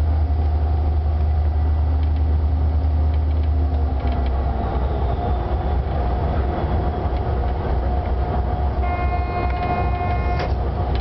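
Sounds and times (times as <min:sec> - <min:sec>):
locomotive engine rumble: 0:00.0 - 0:11.0
locomotive horn chord: 0:08.8 - 0:10.6.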